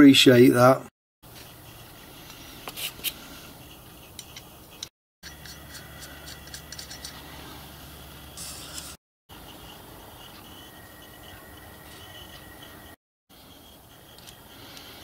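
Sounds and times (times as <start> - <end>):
small metal parts clicking: 5.2 - 7.2.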